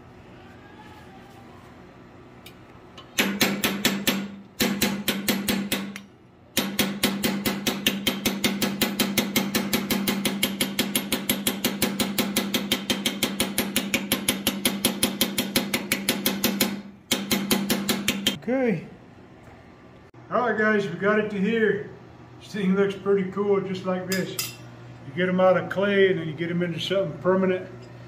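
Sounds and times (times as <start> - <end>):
rapid punch strikes on steel: 3.2 - 18.4.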